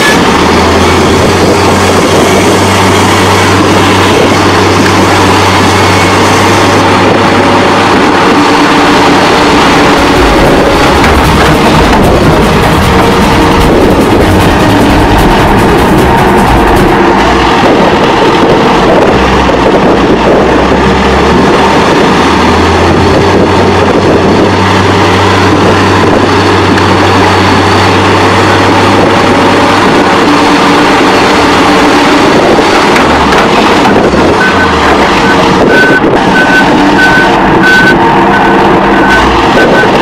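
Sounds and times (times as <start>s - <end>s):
heavy vehicle engine running: 0.0s - 40.0s
reversing alarm beeping: 33.7s - 40.0s.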